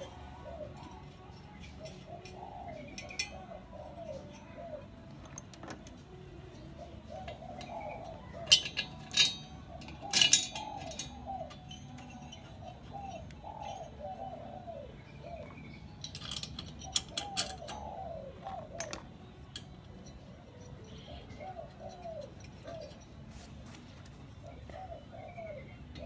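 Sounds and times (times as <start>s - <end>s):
hand tools clinking on metal: 0.0s - 26.0s
bird calling: 6.5s - 26.0s.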